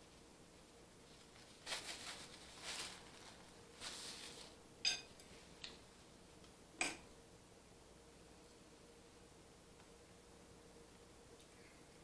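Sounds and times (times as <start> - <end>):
paper napkin rustling: 1.0 - 4.6
fork clinking on glass plate: 4.9 - 5.1.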